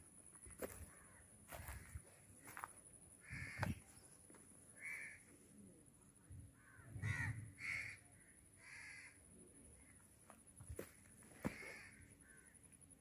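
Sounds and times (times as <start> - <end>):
crow cawing: 0.9 - 1.9, 3.2 - 3.8, 4.8 - 5.3, 6.6 - 9.2, 11.4 - 12.6.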